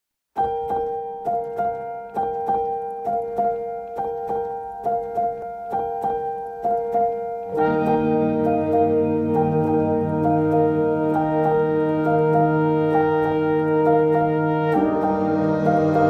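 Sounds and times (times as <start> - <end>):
light keyboard tune: 0.4 - 16.0
lower note accompaniment: 7.5 - 16.0.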